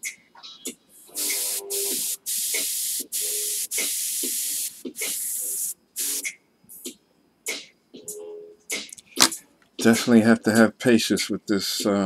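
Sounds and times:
airbrush hissing: 1.1 - 6.3.

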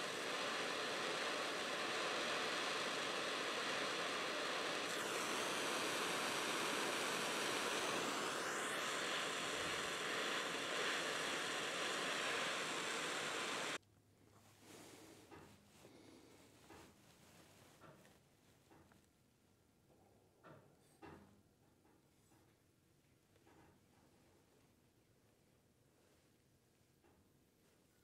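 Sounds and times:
propane torch hissing: 0.0 - 13.8.

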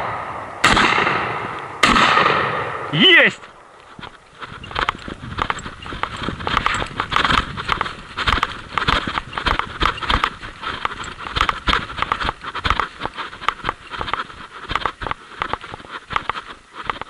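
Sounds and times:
footsteps through dry grass: 3.0 - 17.0
clothing rustling: 3.8 - 17.0.

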